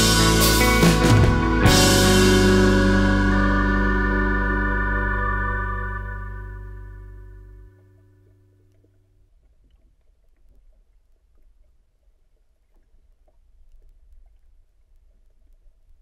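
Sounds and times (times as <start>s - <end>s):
low underwater rumble: 0.0s - 16.0s
small underwater clicks: 7.8s - 16.0s.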